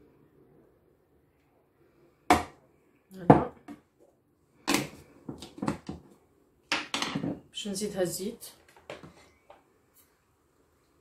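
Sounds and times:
kitchen utensils knocking and clattering: 6.7 - 7.4.

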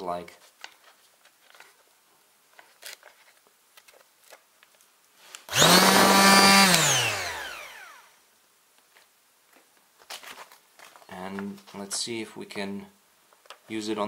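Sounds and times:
electric sander whining: 5.5 - 8.1.

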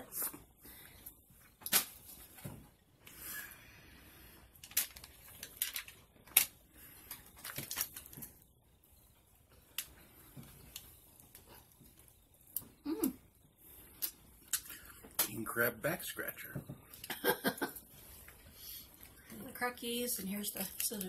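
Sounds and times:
crab shells cracking: 4.6 - 8.4, 14.0 - 15.3.

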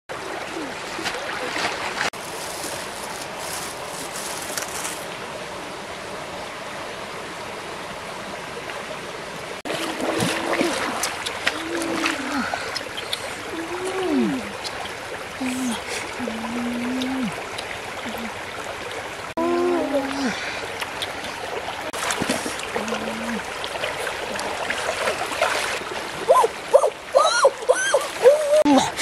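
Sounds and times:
stream water over rocks: 0.1 - 29.0.

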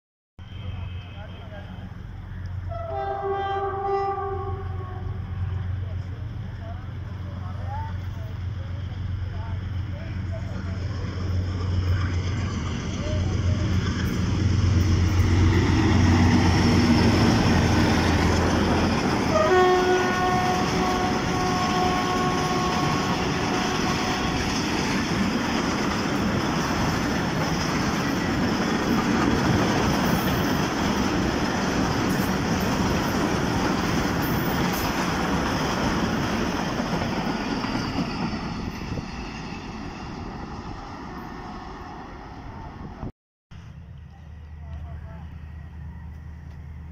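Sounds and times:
diesel locomotive engine: 0.4 - 46.9
train horn: 2.7 - 5.6, 19.2 - 24.8.

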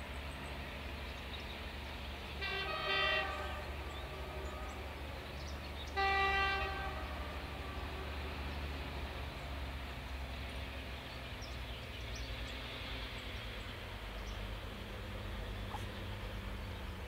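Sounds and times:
locomotive horn blasts: 2.3 - 4.9, 5.9 - 8.4.

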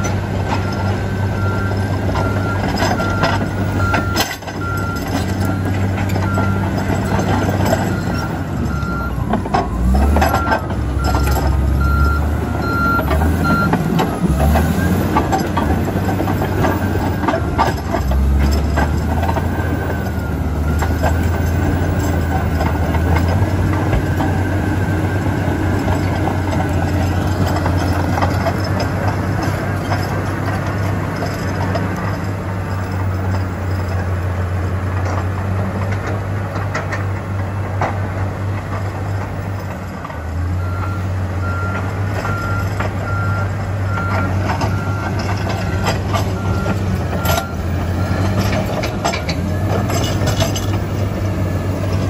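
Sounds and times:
reversing alarm beeping: 0.0 - 15.4, 16.1 - 30.1, 40.2 - 48.8
steel tracks clattering: 0.0 - 40.5, 41.7 - 52.0
diesel engine running: 0.0 - 52.0.

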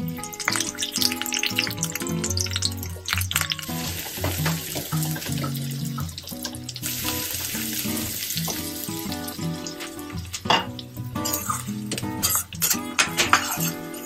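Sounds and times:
background music: 0.0 - 14.0
onion sizzling in a pan: 0.0 - 14.0
metal spoon scraping a pan: 10.5 - 14.0.

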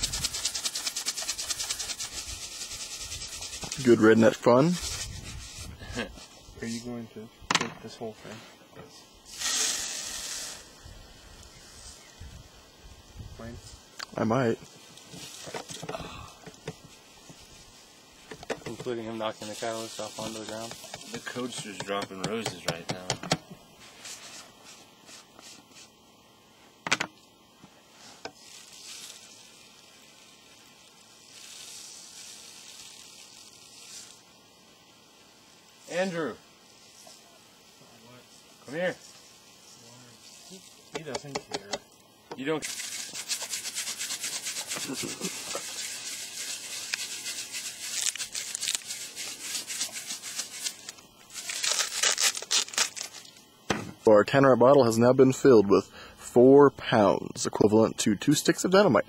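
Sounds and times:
scratchy scraping strokes: 0.0 - 7.0, 23.8 - 26.0, 42.6 - 53.2
plastic containers tapping and rustling: 18.3 - 19.0.

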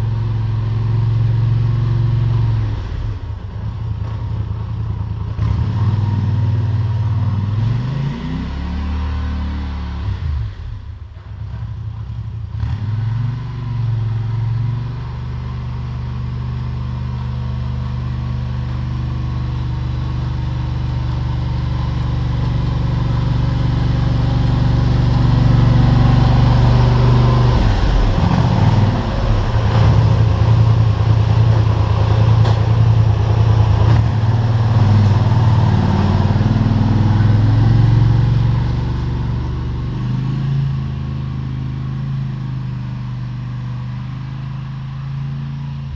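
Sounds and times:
atv engine revving: 0.0 - 10.6, 11.5 - 45.9.

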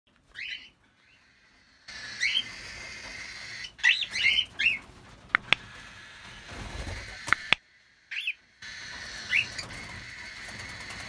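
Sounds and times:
cockatiel chirping: 0.3 - 4.8, 5.4 - 11.0
sharp clicks: 5.2 - 5.9, 6.9 - 7.6.

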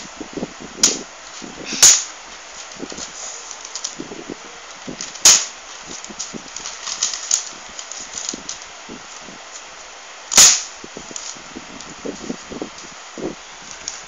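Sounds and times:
ruler smacking paper: 1.8 - 2.1
paper rustling and crinkling: 2.3 - 9.9, 13.6 - 14.0.

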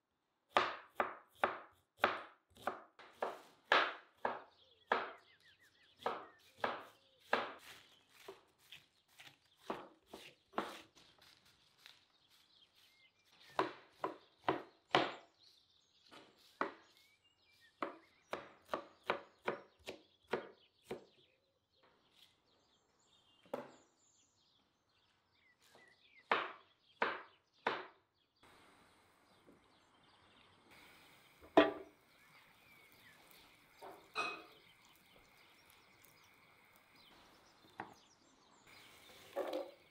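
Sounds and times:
knife chopping on wooden board: 0.5 - 5.3, 6.0 - 10.9, 13.5 - 15.3, 16.1 - 17.0, 17.8 - 21.1, 26.2 - 28.0
faint steady hiss: 28.4 - 37.7.

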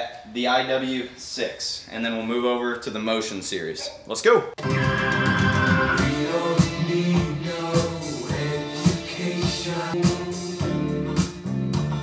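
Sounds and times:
guitar playing: 4.6 - 9.1
person singing: 4.6 - 10.8.

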